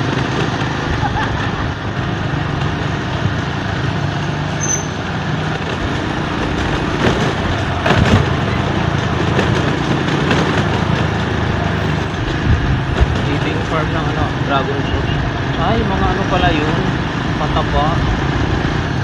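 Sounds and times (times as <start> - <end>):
tyre noise on concrete: 4.6 - 13.6
wind rush: 10.9 - 13.7.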